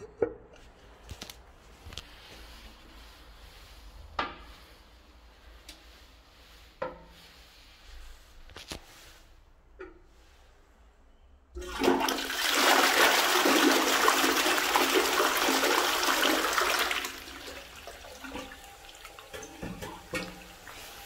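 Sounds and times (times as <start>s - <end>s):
toilet flushing: 11.6s - 21.0s
water running quietly: 11.6s - 21.0s.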